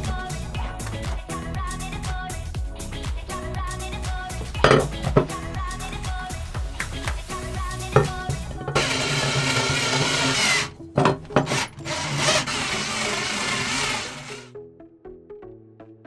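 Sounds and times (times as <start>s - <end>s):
background music: 0.0s - 16.0s
cordless drill driving screws: 8.0s - 14.5s.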